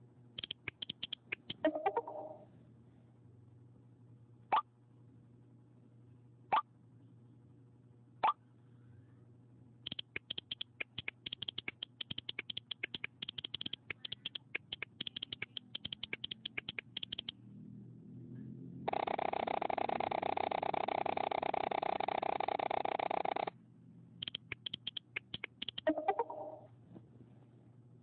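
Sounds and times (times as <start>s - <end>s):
phone keyboard clicks: 0.4s - 2.2s, 9.8s - 17.4s, 24.2s - 25.9s
phone message alert tones: 0.4s - 2.4s, 25.7s - 26.7s.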